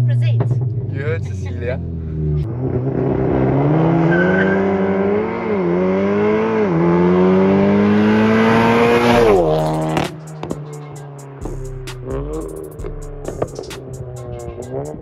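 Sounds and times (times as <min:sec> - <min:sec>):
car engine accelerating hard: 0:00.0 - 0:15.0.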